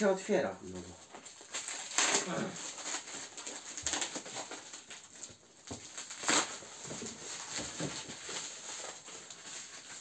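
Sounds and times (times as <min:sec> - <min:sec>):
cardboard ripping: 0:01.0 - 0:10.0
cardboard rustling and scraping: 0:02.7 - 0:10.0.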